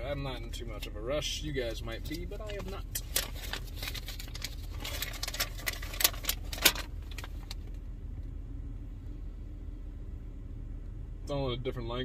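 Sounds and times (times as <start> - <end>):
steady low hum: 0.0 - 12.0
paper leaflet rustling and crinkling: 2.0 - 7.7.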